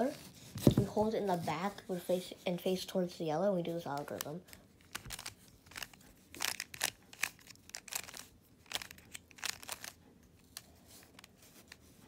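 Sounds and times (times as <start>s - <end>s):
puzzle cube clicking as turned: 4.2s - 11.8s.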